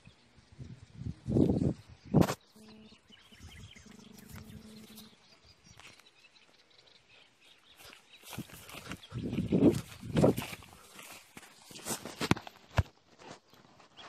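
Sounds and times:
faint droning tone: 2.4s - 6.0s
footsteps brushing through grass: 3.2s - 6.5s, 7.5s - 14.0s
footsteps squelching in mud: 7.6s - 14.0s.

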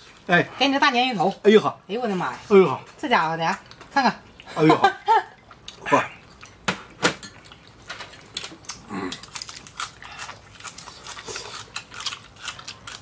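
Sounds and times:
people chewing and smacking: 1.1s - 13.0s
sharp clicks and crunches: 7.9s - 13.0s.

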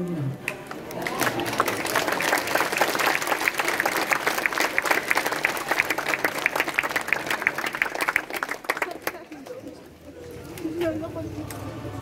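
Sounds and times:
crowd applauding: 0.4s - 9.7s.

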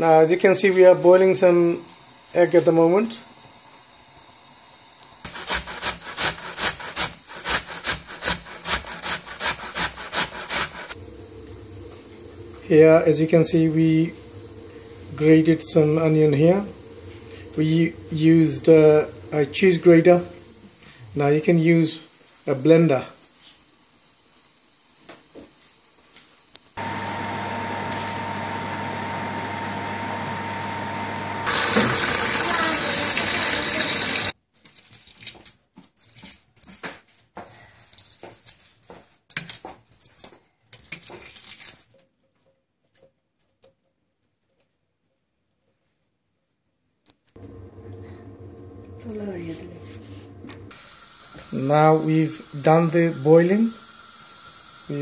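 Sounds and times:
onion grated on metal grater: 5.3s - 11.0s
pot of water boiling: 8.7s - 21.6s, 26.8s - 34.4s, 47.4s - 55.0s
low hum: 10.9s - 21.5s, 26.8s - 31.6s, 47.4s - 54.9s.

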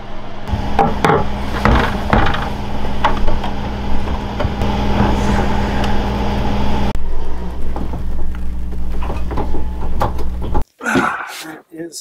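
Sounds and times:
low mechanical hum: 0.0s - 10.6s
knocks and clatters: 0.5s - 5.1s.

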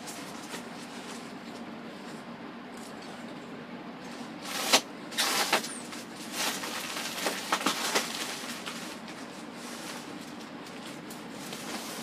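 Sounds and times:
styrofoam scraping and rustling: 4.4s - 12.0s.

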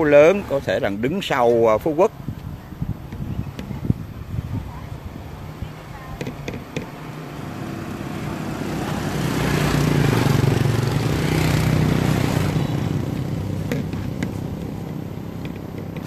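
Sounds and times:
vehicle passing by: 6.9s - 16.0s.

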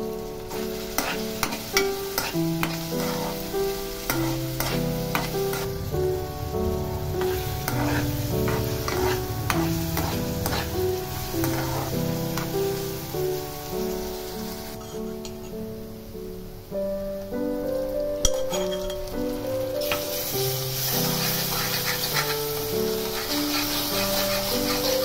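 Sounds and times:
background music of held notes: 0.0s - 25.0s
onions sizzling in oil: 0.0s - 25.0s
spatula scraping a pan: 0.5s - 6.2s, 7.2s - 12.9s, 19.8s - 25.0s.

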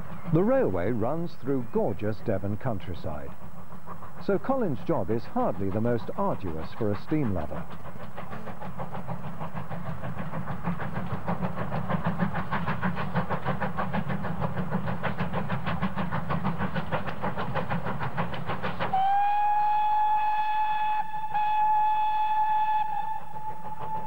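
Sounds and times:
steam locomotive running: 0.0s - 24.0s
steam whistle blast: 18.9s - 24.0s.

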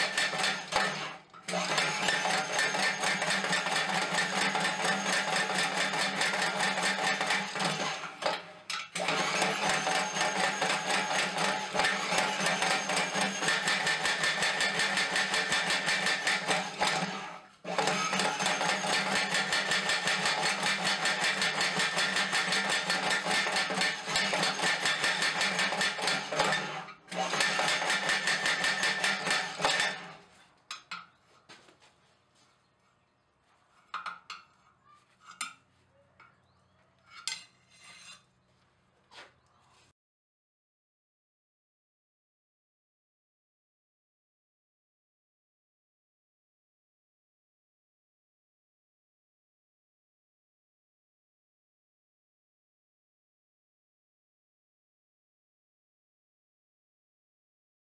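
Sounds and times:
power hammer hammering steel: 0.0s - 8.4s, 9.0s - 30.1s.

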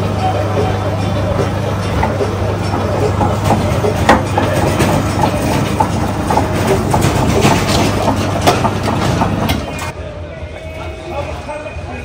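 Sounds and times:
juice extractor motor drone: 0.0s - 9.9s
crackles and knocks of pulp: 2.8s - 9.9s.

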